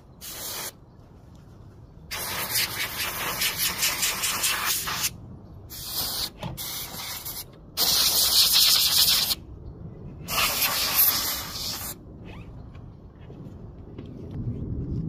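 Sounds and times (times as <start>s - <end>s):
compressed air can hissing: 0.2s - 0.8s, 2.1s - 9.4s, 10.3s - 12.0s.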